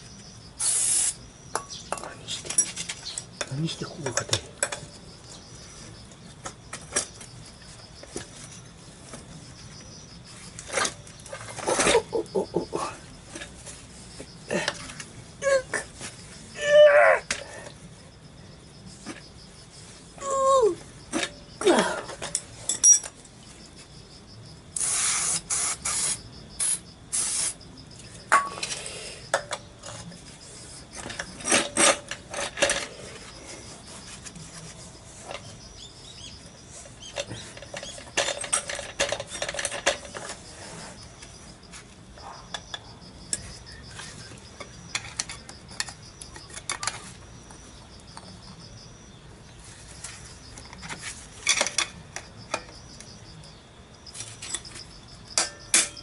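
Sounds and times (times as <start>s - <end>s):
wrench clinking and scraping metal: 1.5s - 5.0s, 22.0s - 23.2s, 31.0s - 33.4s, 36.8s - 40.6s, 50.7s - 52.7s, 55.4s - 56.0s.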